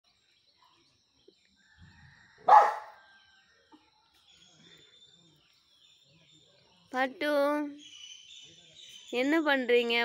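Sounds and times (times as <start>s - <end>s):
puppy barking: 2.5s - 3.0s.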